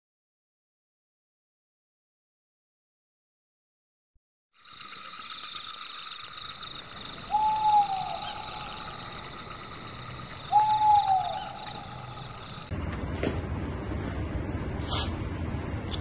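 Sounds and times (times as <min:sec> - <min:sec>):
insects chirping in trills: 0:04.6 - 0:12.7
night bird calling: 0:04.6 - 0:12.7.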